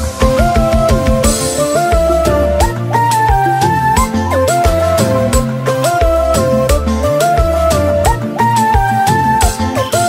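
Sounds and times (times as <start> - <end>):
regular drum beat: 0.0 - 2.8
band music with sliding lead melody: 0.0 - 10.0
bass line: 0.0 - 10.0.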